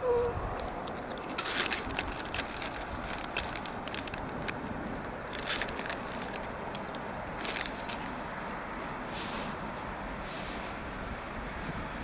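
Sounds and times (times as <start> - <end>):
sharp crackles: 1.0 - 8.2.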